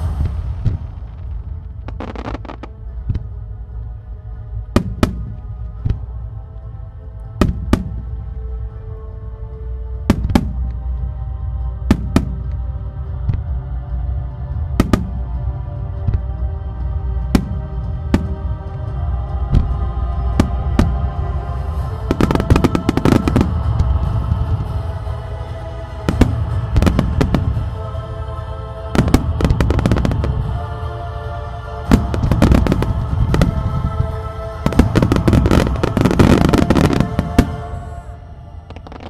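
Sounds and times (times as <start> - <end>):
show soundtrack music: 0.0 - 39.0
fireworks bursting: 31.9 - 34.0, 34.6 - 37.8, 38.7 - 39.0.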